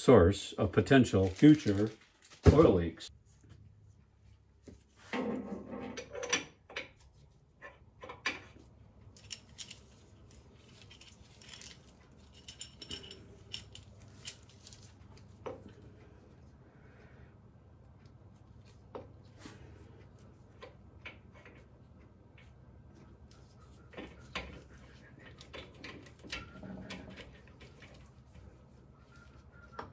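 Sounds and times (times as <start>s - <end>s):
metal chain clinking: 9.2s - 14.9s.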